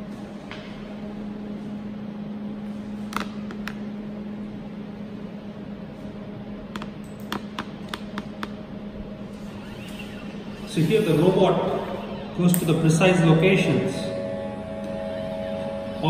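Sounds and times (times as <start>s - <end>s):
low machine hum: 0.0s - 16.0s.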